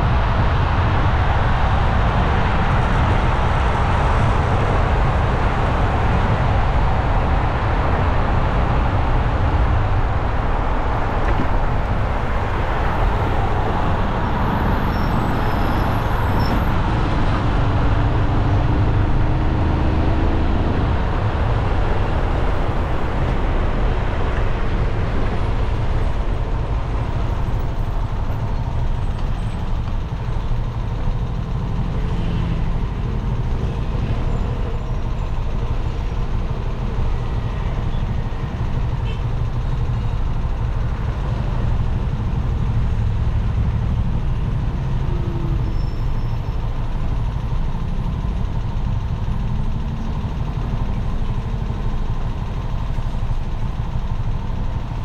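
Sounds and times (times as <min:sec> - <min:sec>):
busy road traffic: 0:00.0 - 0:55.0.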